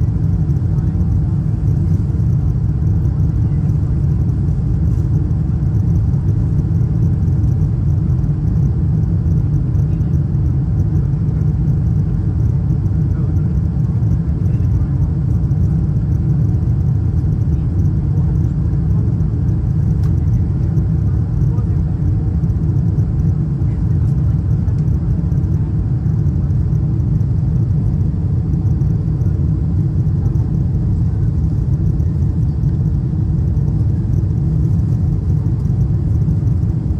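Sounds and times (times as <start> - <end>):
airliner cabin rumble: 0.0 - 36.9.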